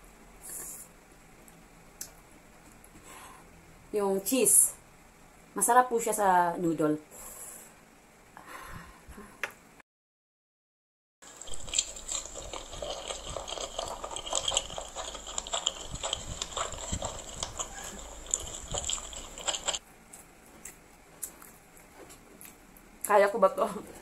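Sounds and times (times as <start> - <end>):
person slurping and chewing noodles: 11.2 - 22.6.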